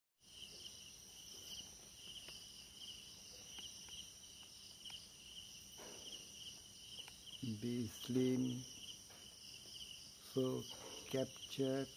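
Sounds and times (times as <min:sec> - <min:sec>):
crickets chirping: 0:00.2 - 0:11.9.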